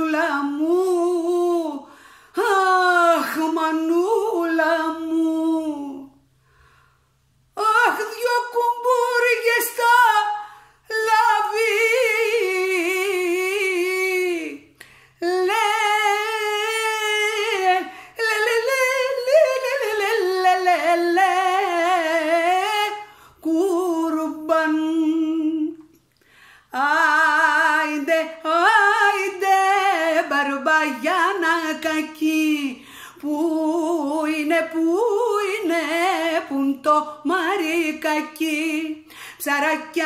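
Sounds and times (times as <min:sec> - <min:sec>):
woman singing unaccompanied: 0:00.0 - 0:06.2, 0:07.5 - 0:26.0, 0:26.7 - 0:40.0
singer breathing: 0:01.8 - 0:02.4, 0:06.3 - 0:07.3, 0:10.4 - 0:10.9, 0:14.7 - 0:15.2, 0:26.1 - 0:26.8, 0:32.8 - 0:33.2, 0:39.0 - 0:39.4.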